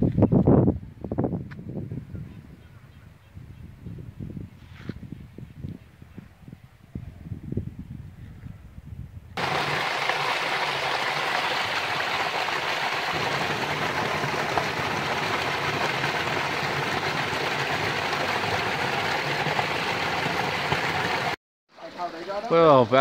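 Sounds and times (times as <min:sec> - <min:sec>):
water splashing over rocks: 0:09.4 - 0:21.4.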